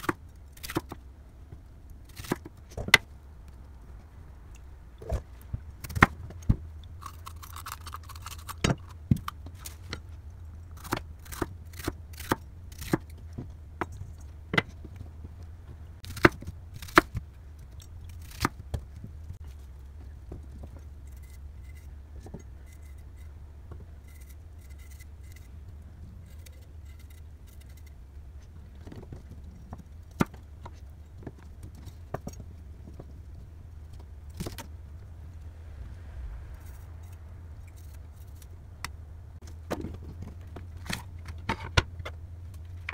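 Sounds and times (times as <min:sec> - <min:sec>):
low steady hum: 0:00.0 - 0:42.9.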